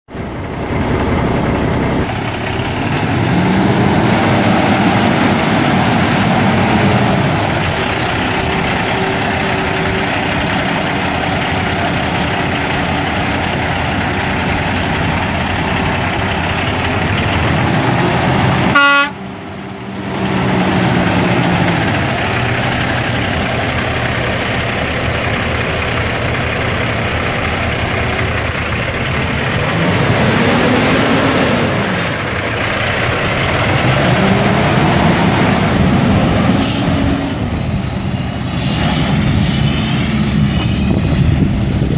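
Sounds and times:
diesel truck engine revving: 0.1s - 41.9s
truck horn toot: 18.4s - 19.5s.

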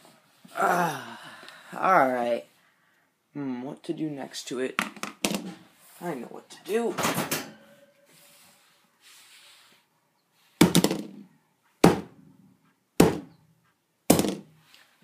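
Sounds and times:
dumbbell thudding on wooden floor: 10.6s - 11.2s, 11.8s - 12.2s, 13.0s - 13.3s, 14.1s - 14.5s.

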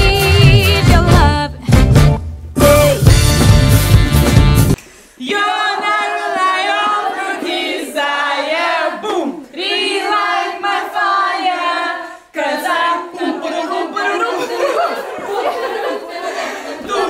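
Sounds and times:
women singing unaccompanied: 0.0s - 1.6s, 5.2s - 9.0s, 9.6s - 15.1s.

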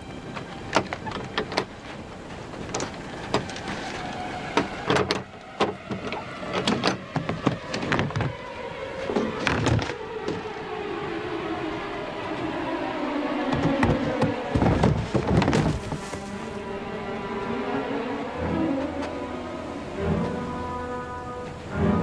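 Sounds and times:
crate latches clicking: 0.7s - 1.8s, 2.6s - 10.4s.

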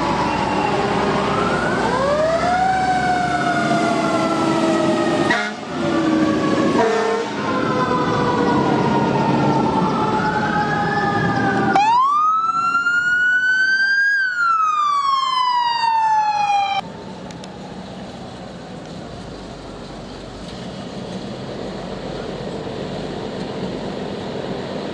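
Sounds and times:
emergency vehicle sirens wailing: 0.0s - 19.9s
traffic noise: 0.0s - 24.9s
low horn blast: 5.1s - 5.8s, 6.7s - 7.5s.

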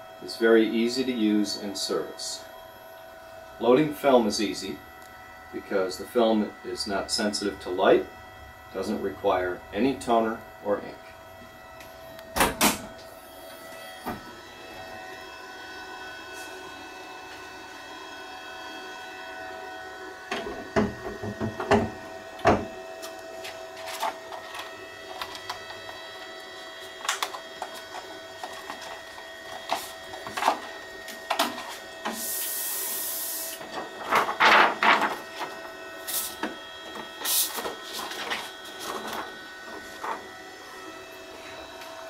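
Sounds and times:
machine humming: 0.0s - 42.0s
rushing hiss: 32.2s - 33.5s.

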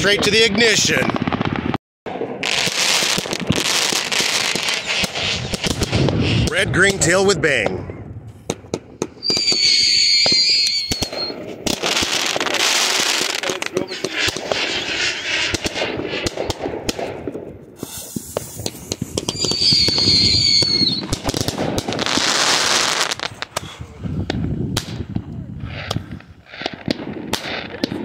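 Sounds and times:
firework bangs: 0.0s - 7.8s, 8.4s - 28.0s
crackling pops: 2.4s - 7.0s, 8.4s - 28.0s
steady whistle: 9.2s - 11.4s, 19.3s - 21.0s
loud hissing bursts: 17.8s - 21.0s.

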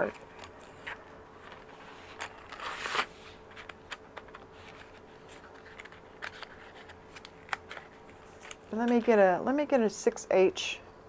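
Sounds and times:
pencils sliding into cardboard box: 1.4s - 3.7s.

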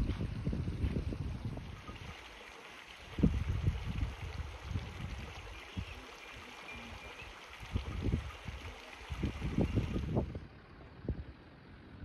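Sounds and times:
wind buffeting microphone: 0.0s - 2.2s, 3.0s - 6.0s, 7.5s - 11.4s.

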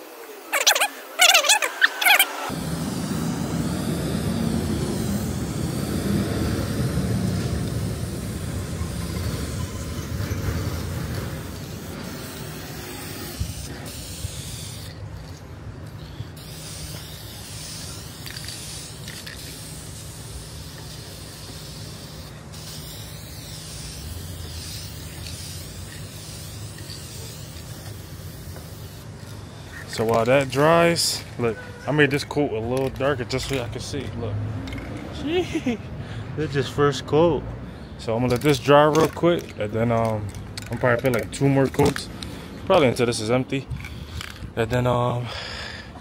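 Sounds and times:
aerosol spray can hissing: 0.5s - 15.4s, 16.0s - 31.1s.

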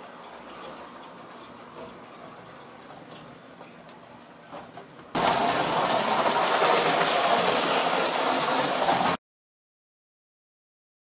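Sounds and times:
toy train motor whir and rattle: 5.2s - 9.2s.

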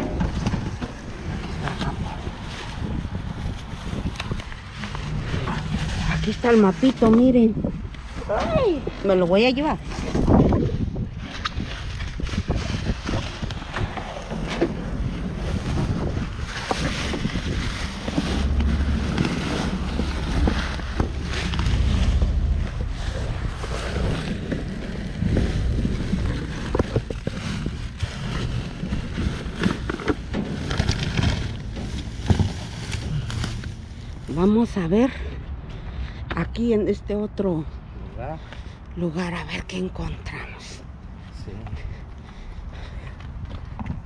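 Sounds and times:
wind buffeting microphone: 0.0s - 36.4s
plastic garbage bags rustling: 11.8s - 34.6s.

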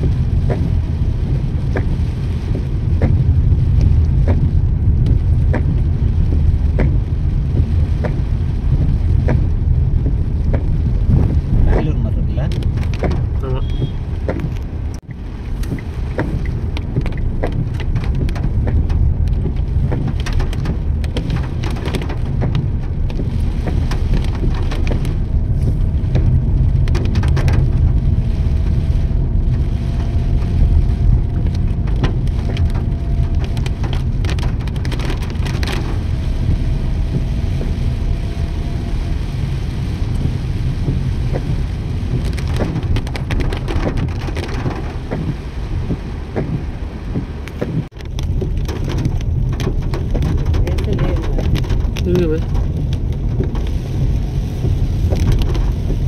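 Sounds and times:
rain drops ticking: 0.0s - 56.0s
vehicle low rumble: 0.0s - 56.0s.

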